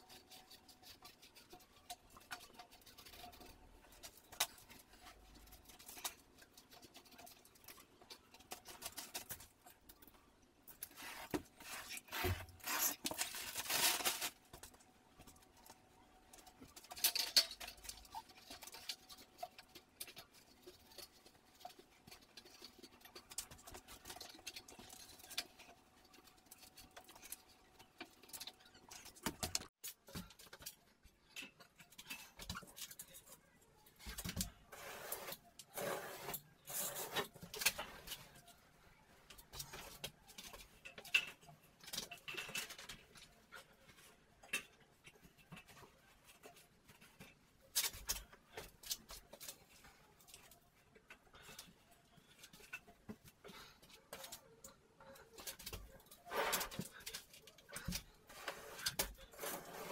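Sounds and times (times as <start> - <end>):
scraping on drywall: 10.8 - 14.4, 34.7 - 38.0, 58.3 - 59.9.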